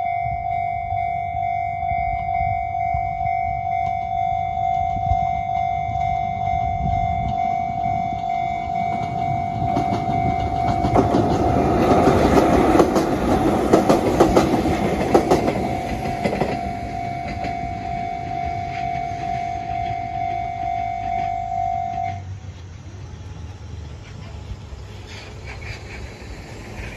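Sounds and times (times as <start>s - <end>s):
level crossing bell ringing: 0.0s - 11.0s, 15.6s - 22.2s
electric train passing: 0.0s - 26.9s
train wheels clacking on rail joints: 4.6s - 22.1s, 23.8s - 26.9s.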